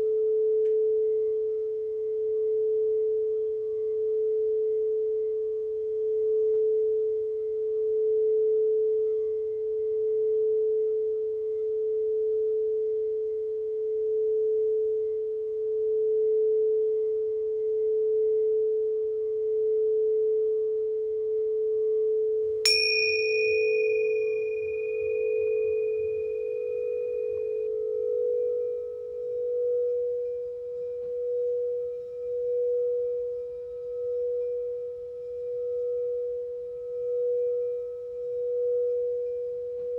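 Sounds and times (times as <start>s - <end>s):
singing bowl low tone: 0.0s - 39.9s
singing bowl strike ringing: 22.6s - 30.2s.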